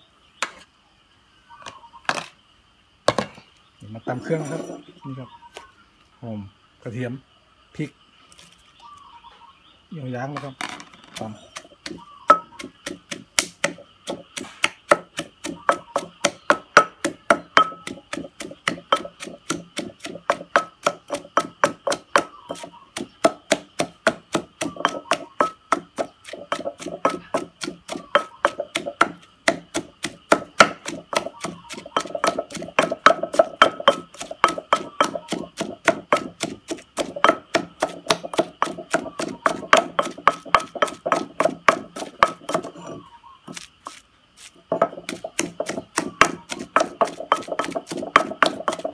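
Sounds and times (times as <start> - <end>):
pestle pounding in mortar: 11.1 - 48.9.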